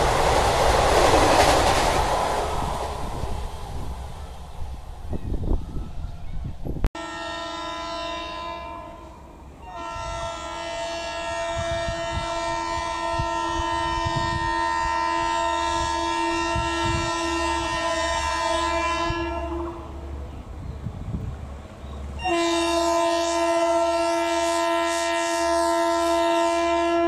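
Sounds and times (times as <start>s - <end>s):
train air horn: 7.0s - 20.0s, 22.2s - 27.0s.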